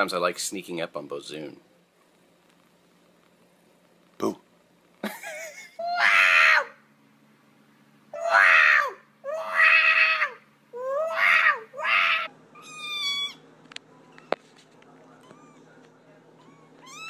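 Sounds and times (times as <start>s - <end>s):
cat yowling: 5.8s - 6.8s, 8.2s - 13.4s, 15.2s - 15.7s, 16.4s - 17.0s.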